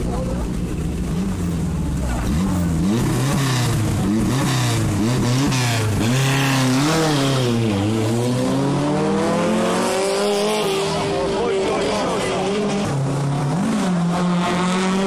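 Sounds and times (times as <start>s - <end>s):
rally car engine accelerating: 0.0s - 15.0s.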